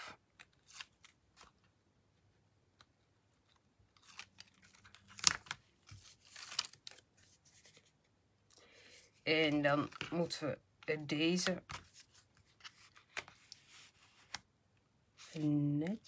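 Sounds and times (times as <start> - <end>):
paper rustling: 3.4 - 8.0, 11.4 - 14.4, 15.2 - 16.0
sharp paper crackle: 4.0 - 7.8.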